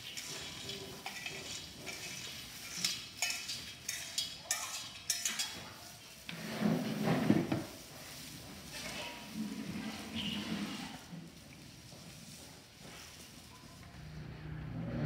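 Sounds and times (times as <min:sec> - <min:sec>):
metal spoon scraping colander: 0:00.0 - 0:11.2.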